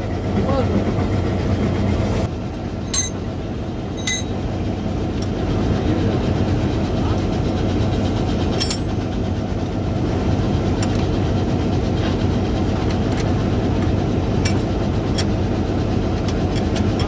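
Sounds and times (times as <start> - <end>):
diesel locomotive idling: 0.0 - 17.0
metal coupler clicks: 12.8 - 15.4.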